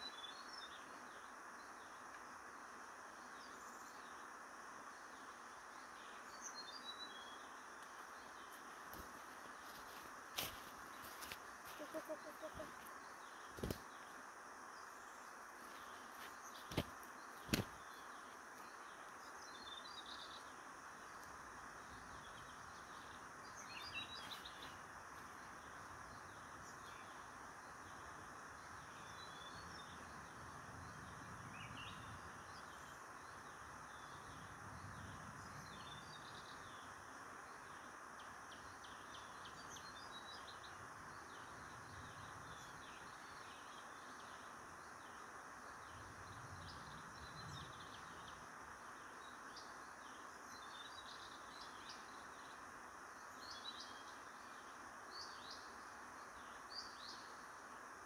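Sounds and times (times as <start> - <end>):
steady hiss: 0.0 - 58.0
small birds chirping: 5.8 - 27.2.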